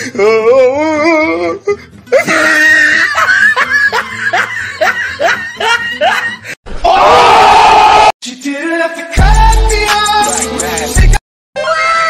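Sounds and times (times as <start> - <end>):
person crying out: 0.1 - 3.2
person laughing: 2.1 - 6.6.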